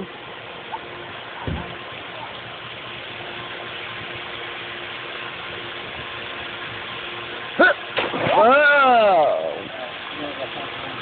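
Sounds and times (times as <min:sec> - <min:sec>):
low thump: 0:01.4 - 0:01.7.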